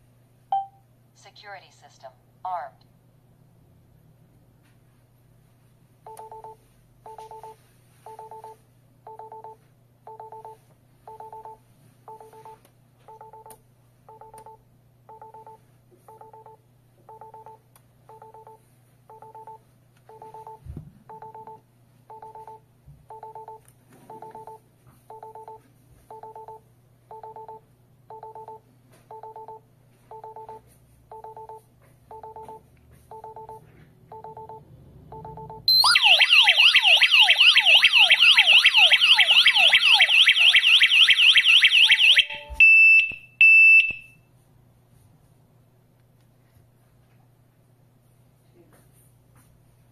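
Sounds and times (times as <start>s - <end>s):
alarm buzzer beeping: 31.2s - 44.1s.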